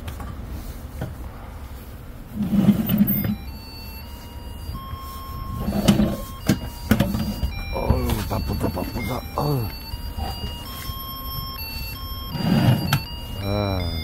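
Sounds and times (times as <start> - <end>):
metal drawer sliding and scraping: 2.3 - 3.5, 5.5 - 7.6, 12.3 - 13.1.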